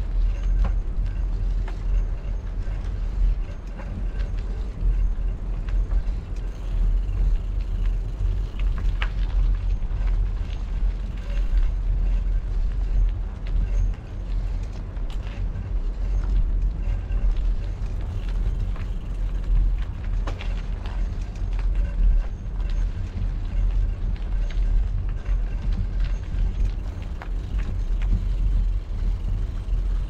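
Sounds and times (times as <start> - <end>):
faint clicks and rattles: 0.0 - 30.0.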